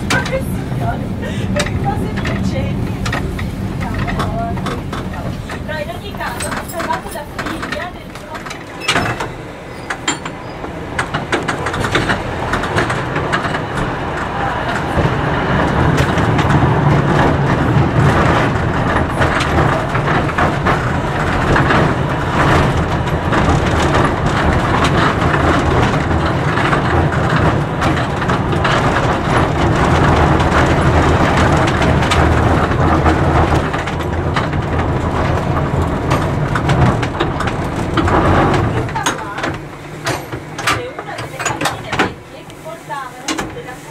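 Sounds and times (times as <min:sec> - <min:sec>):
tram rumbling on track: 0:00.0 - 0:43.9
wheels clicking on rail joints: 0:00.0 - 0:43.9.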